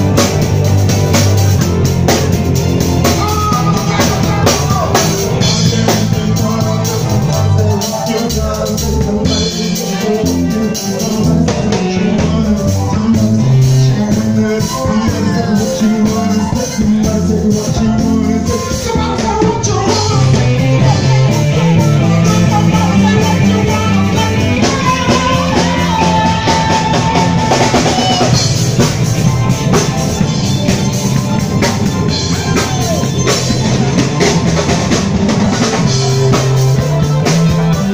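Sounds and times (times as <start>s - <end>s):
live band with drums and bass: 0.0s - 37.9s
man singing into microphone: 3.0s - 28.5s.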